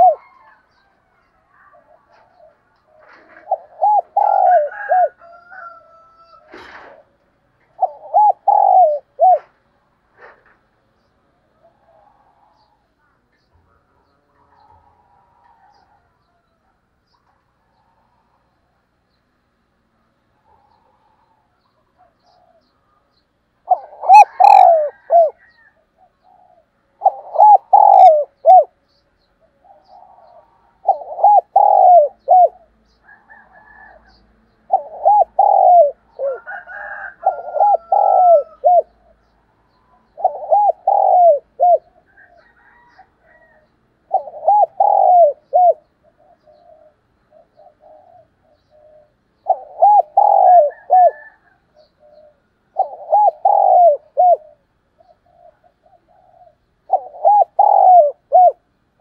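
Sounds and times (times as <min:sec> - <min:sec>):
dove cooing: 0:00.0 - 0:13.0, 0:13.7 - 0:18.7, 0:19.8 - 0:58.7.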